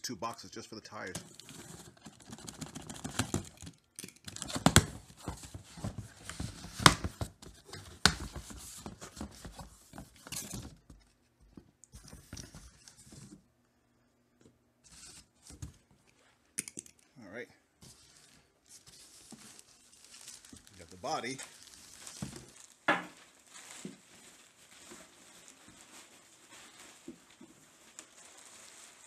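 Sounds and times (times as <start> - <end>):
cardboard rustling and tearing: 17.9 - 29.0.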